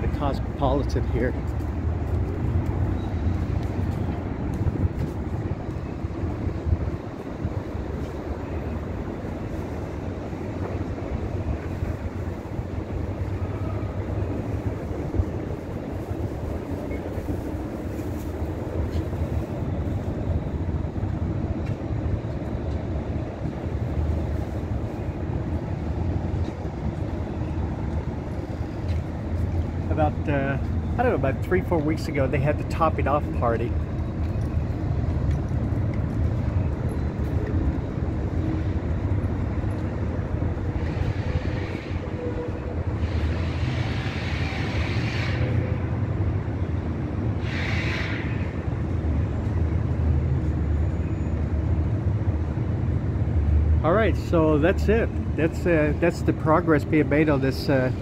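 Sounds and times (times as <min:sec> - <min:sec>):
low rumble of vehicles: 0:00.0 - 0:58.0.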